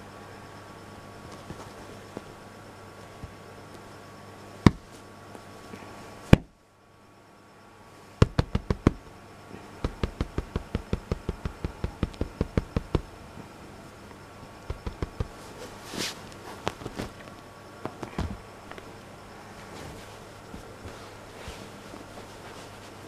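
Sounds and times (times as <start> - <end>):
sharp knocks: 8.2 - 9.0, 9.8 - 13.1, 14.7 - 15.4.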